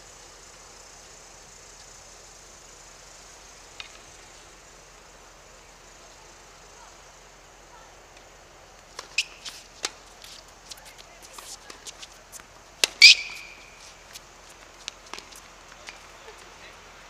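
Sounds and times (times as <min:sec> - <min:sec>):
steady outdoor hiss: 0:00.0 - 0:17.0
shoe squeak: 0:09.0 - 0:09.7, 0:12.9 - 0:14.1
tennis ball sharp clicks: 0:12.8 - 0:13.6.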